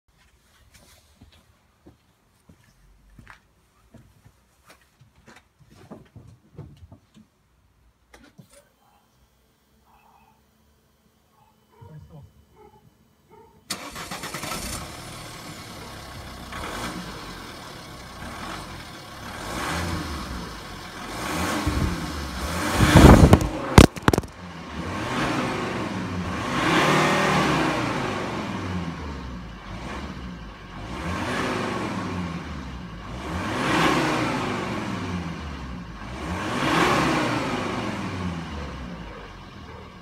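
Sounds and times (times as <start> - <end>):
diesel engine revving: 13.7 - 40.0
camera falling over clatter: 23.0 - 24.4.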